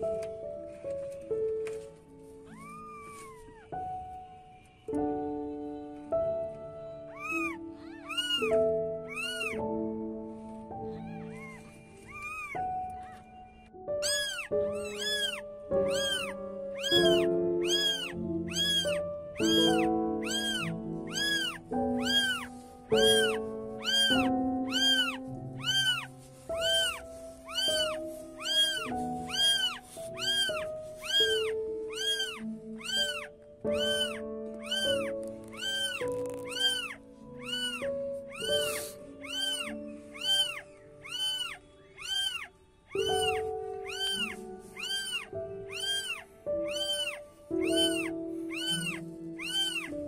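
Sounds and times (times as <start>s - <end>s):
background music of held notes: 0.0s - 50.0s
kittens mewing: 2.4s - 3.8s, 7.1s - 9.7s, 10.8s - 50.0s.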